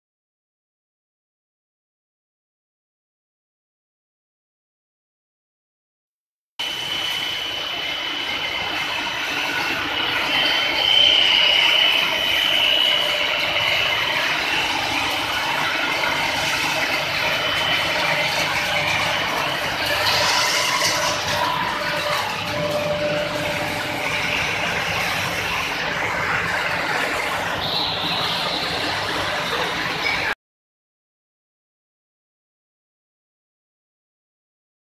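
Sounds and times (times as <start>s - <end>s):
machine running noise: 6.6s - 30.4s
thin high whine: 6.6s - 30.4s.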